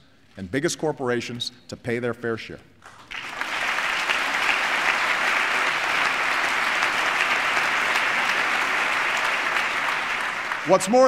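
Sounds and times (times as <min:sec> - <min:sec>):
large audience applause: 0:02.8 - 0:11.0.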